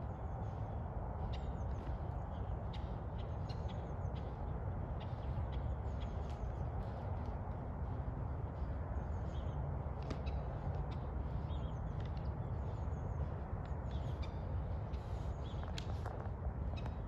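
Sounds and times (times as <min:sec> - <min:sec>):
low outdoor rumble: 0:00.0 - 0:17.0
small birds chirping: 0:00.0 - 0:17.0.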